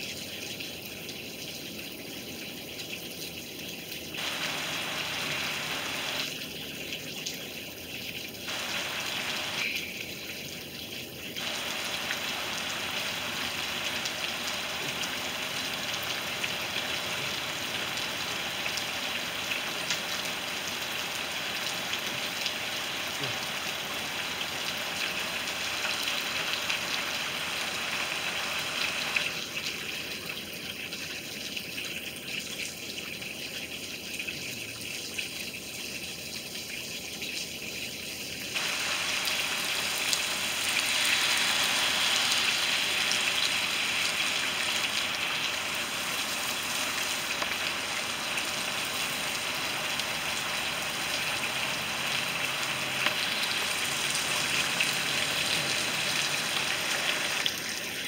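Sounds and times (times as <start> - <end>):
rain falling: 0.0 - 30.8, 38.5 - 58.0
louder brighter hiss: 4.2 - 6.3.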